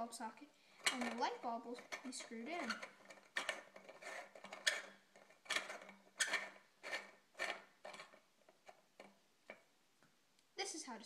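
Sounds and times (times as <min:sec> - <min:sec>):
light bulb base scraping in socket: 0:00.8 - 0:08.2.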